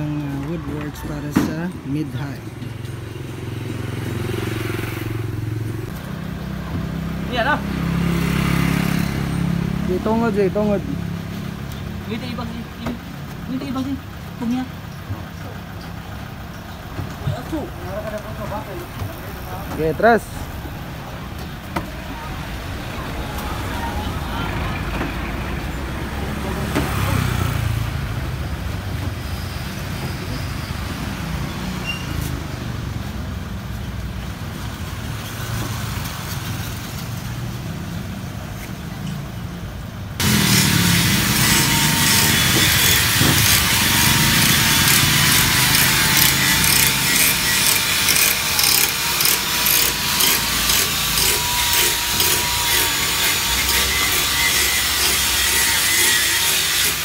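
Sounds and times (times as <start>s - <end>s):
wood being sawn: 40.2s - 57.0s.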